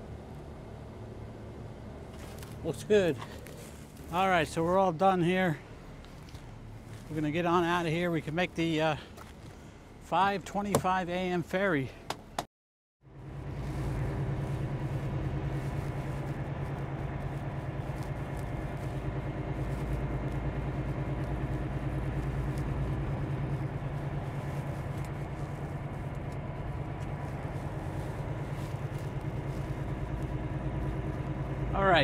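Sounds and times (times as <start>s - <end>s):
diesel truck engine droning: 13.0s - 32.0s.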